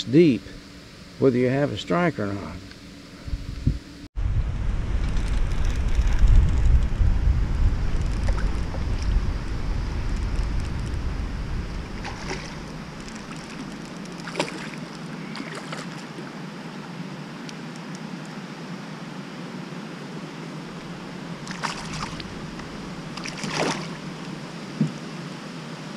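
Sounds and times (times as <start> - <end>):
wind buffeting microphone: 3.2 - 14.7, 20.6 - 25.0
fish splashing at water surface: 12.0 - 16.2, 21.4 - 24.2.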